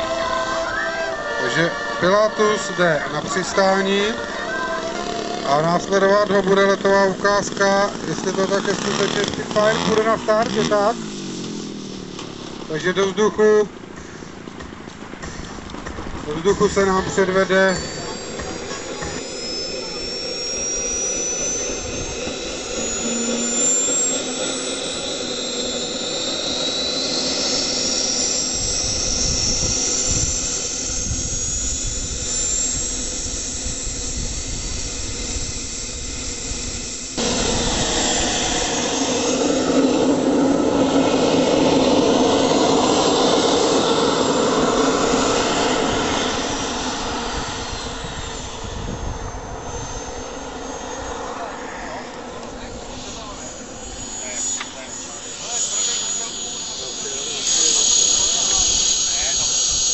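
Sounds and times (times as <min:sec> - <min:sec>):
model jet turbine whine: 0:00.0 - 0:59.9
rushing jet noise: 0:00.0 - 0:59.9.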